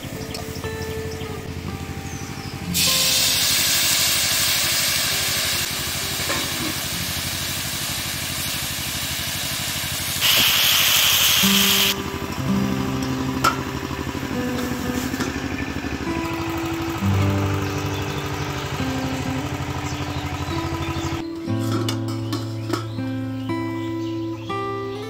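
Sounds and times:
vegetables sizzling in hot oil: 2.7s - 12.0s.

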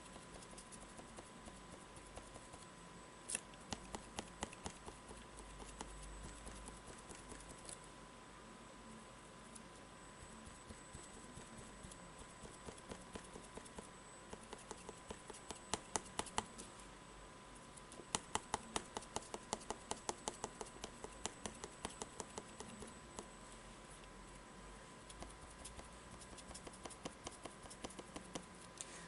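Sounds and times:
paint dabber tapping on cardboard: 0.1s - 2.6s, 3.7s - 7.6s, 10.4s - 16.5s, 18.0s - 23.3s, 25.2s - 28.5s.

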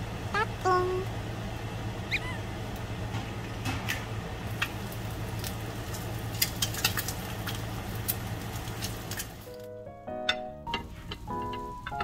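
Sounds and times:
low steady hum: 0.0s - 12.0s
egg sizzling in a pan: 4.4s - 9.7s
crackles and pops: 4.5s - 9.7s.

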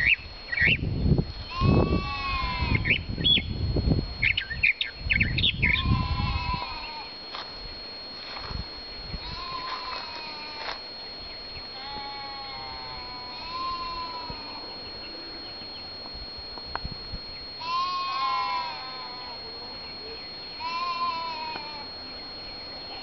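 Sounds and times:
livestock bleating: 1.4s - 3.0s, 5.7s - 7.1s, 9.2s - 10.8s, 11.7s - 15.2s, 17.6s - 19.4s, 20.5s - 22.0s.

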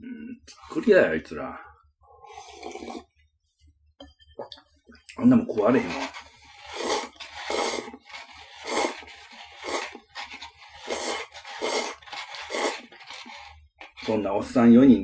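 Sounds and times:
man slurping noodles: 2.2s - 3.2s, 6.2s - 13.2s.

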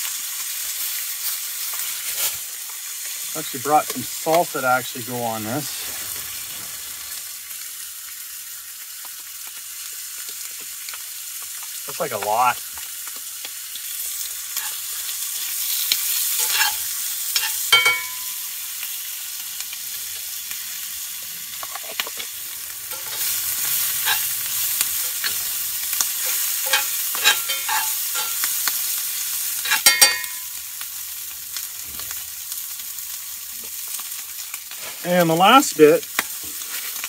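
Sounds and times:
food sizzling in a skillet: 0.0s - 37.0s
utensil scraping and knocking pan: 16.4s - 18.2s, 26.2s - 28.5s.

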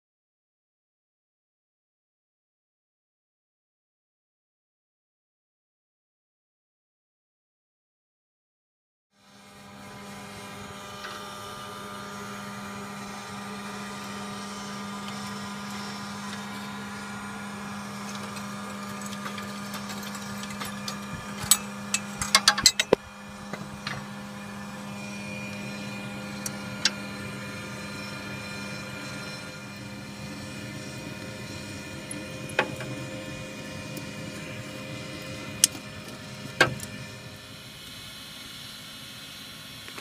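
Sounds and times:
steady mechanical hum: 9.2s - 40.0s
metal clinks at firebox door: 21.5s - 22.9s.

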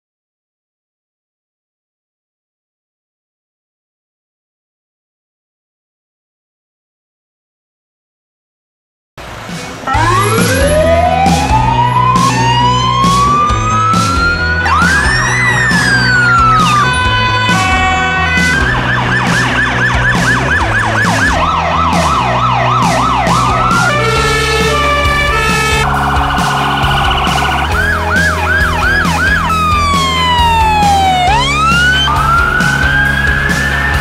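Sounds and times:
emergency sirens wailing: 9.2s - 34.0s
background music with beat: 9.3s - 34.0s.

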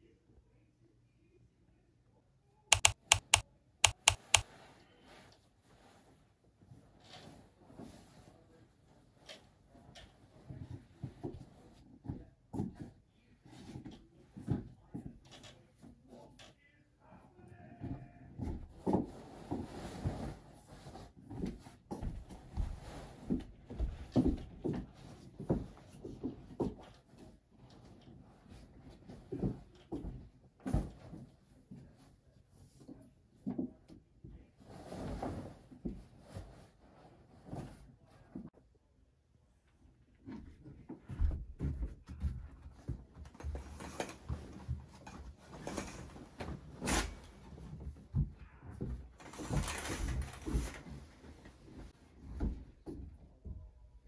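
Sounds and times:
footsteps: 2.7s - 4.4s
bedding rustling and thumping: 18.4s - 32.0s, 34.6s - 38.4s, 40.2s - 53.6s
curtain runners scraping along track: 49.2s - 51.7s.

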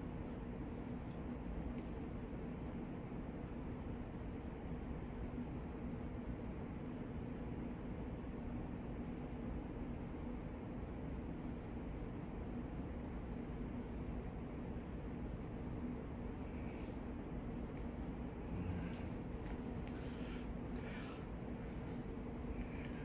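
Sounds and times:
fan blades rushing air: 13.3s - 23.0s
low hum: 15.5s - 23.0s.

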